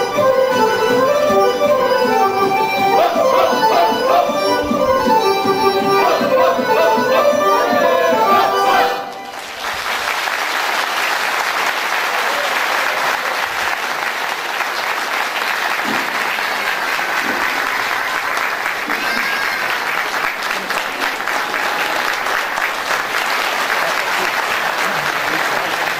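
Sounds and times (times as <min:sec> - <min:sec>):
audience applauding: 0:06.0 - 0:25.9.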